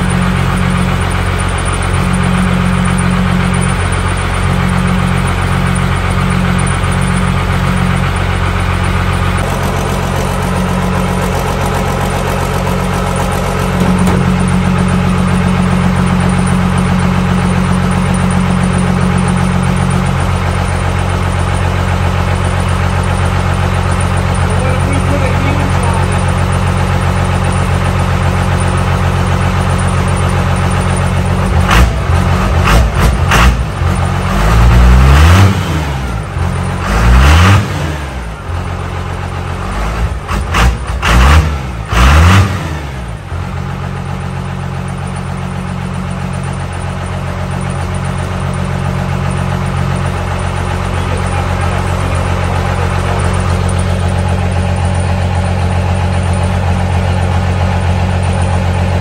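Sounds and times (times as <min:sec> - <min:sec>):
diesel engine idling: 0:00.0 - 0:59.0
diesel engine revving: 0:00.0 - 0:59.0.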